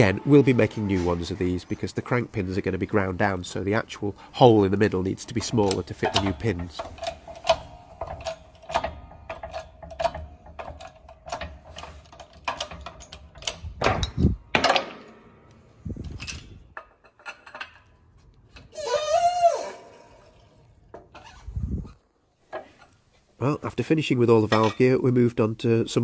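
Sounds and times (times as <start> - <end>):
hydraulic press metallic clicks: 4.1 - 18.7
metal clunks: 5.1 - 18.0.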